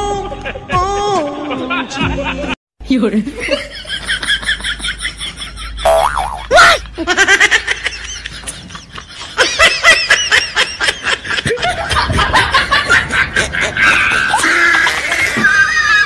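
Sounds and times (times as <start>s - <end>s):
laughter in quick bursts: 6.5s - 15.4s.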